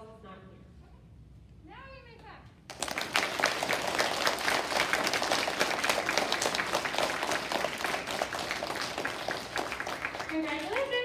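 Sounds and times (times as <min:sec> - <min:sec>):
children applauding: 0:02.7 - 0:11.0.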